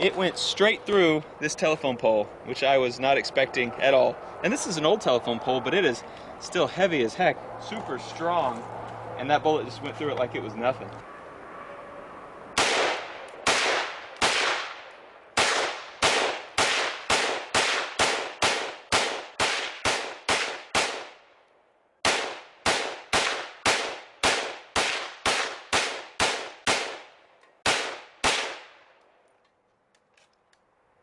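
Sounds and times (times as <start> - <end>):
rifle firing rapid shots: 12.6 - 14.8, 15.4 - 21.2, 22.0 - 28.7.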